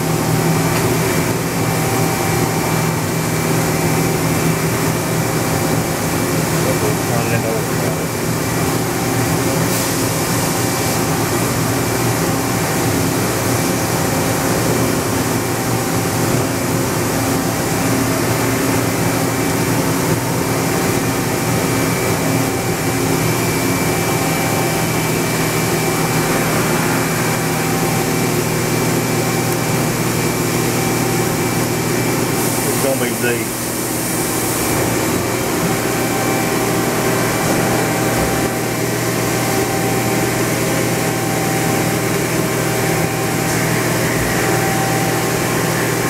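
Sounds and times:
machine whirring hum: 0:00.0 - 0:46.0
thin high whine: 0:20.7 - 0:46.0.

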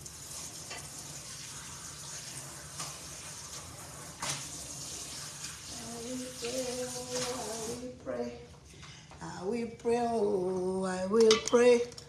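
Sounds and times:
kitchen tap running: 0:00.0 - 0:08.0.

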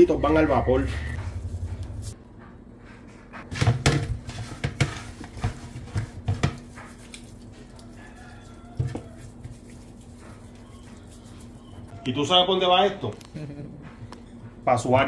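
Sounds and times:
low hum: 0:00.0 - 0:03.4.

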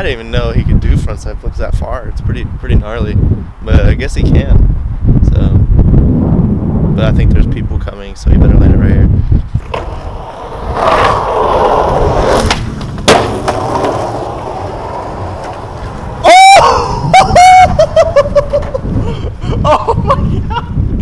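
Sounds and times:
skateboard wheels rolling on concrete: 0:09.0 - 0:21.0
short falling cries: 0:14.9 - 0:19.2
loud rising cry: 0:16.0 - 0:18.8.

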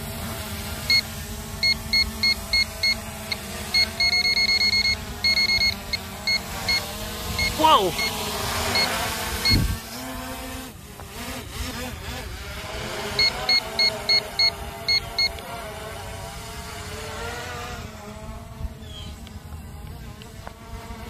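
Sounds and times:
drone propellers buzzing: 0:00.0 - 0:21.0
short electronic beeps: 0:01.6 - 0:09.6, 0:13.2 - 0:15.4.

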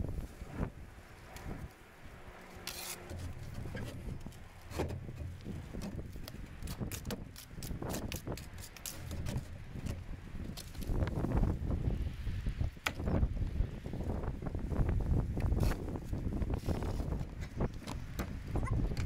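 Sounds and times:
trowel scraping mortar board: 0:02.7 - 0:05.1.

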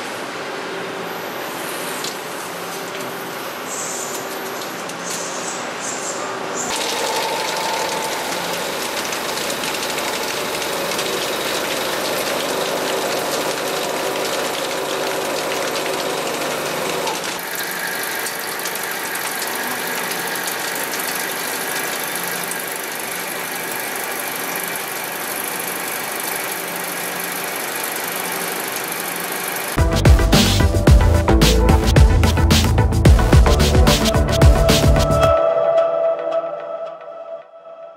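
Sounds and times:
machine hum: 0:06.4 - 0:35.4.

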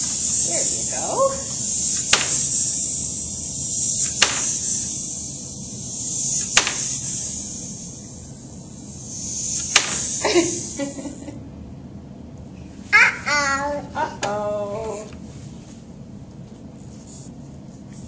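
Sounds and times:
clockwork toy whirring: 0:00.0 - 0:11.1.

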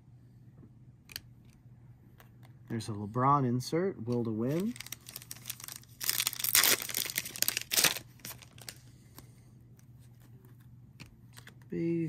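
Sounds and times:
plastic wrapper tearing and crinkling: 0:04.5 - 0:08.8.

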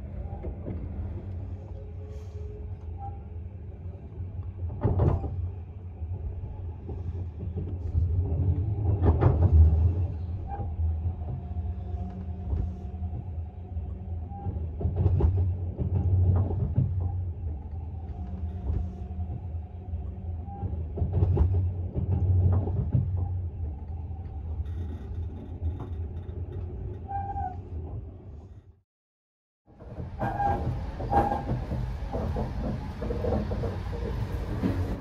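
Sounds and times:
train low rumble: 0:00.0 - 0:28.8, 0:29.7 - 0:35.0
train wheel clatter: 0:06.5 - 0:13.5, 0:14.2 - 0:19.5, 0:20.4 - 0:28.0, 0:29.8 - 0:35.0.

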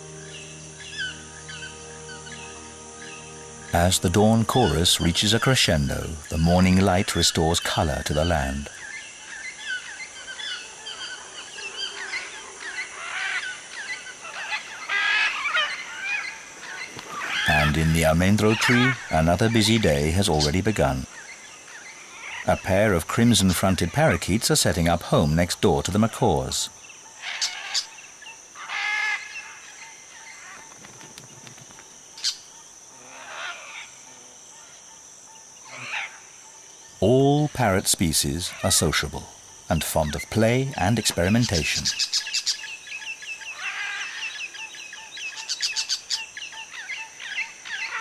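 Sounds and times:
birds squawking: 0:00.0 - 0:24.3, 0:27.2 - 0:28.0, 0:28.6 - 0:30.8, 0:37.2 - 0:48.0
birds calling and chirping: 0:00.0 - 0:48.0
high insect buzz: 0:00.0 - 0:48.0
parakeets harsh calls: 0:07.5 - 0:22.5, 0:27.2 - 0:27.9, 0:28.6 - 0:29.7, 0:35.6 - 0:36.3, 0:41.2 - 0:42.7, 0:43.5 - 0:44.4, 0:45.2 - 0:48.0.

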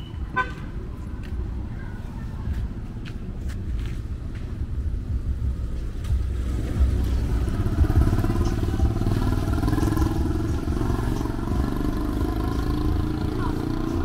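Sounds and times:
street traffic rumble: 0:00.0 - 0:14.0
motorcycle engine running: 0:04.8 - 0:14.0.

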